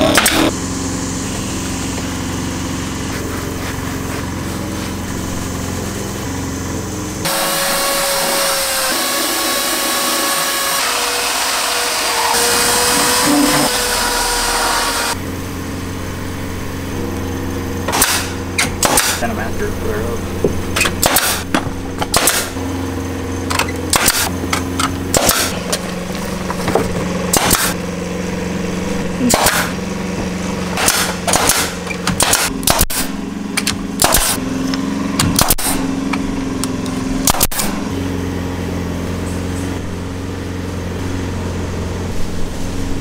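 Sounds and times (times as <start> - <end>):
low hum: 0.0 - 11.0, 11.9 - 43.0
nail gun firing: 17.9 - 19.3, 20.8 - 22.6, 23.5 - 25.7, 27.3 - 27.8, 29.2 - 29.8, 30.7 - 34.4, 35.2 - 35.9, 37.2 - 37.8.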